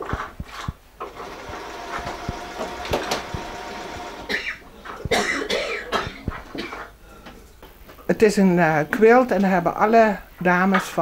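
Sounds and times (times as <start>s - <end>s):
sewing machine running: 1.0s - 4.4s.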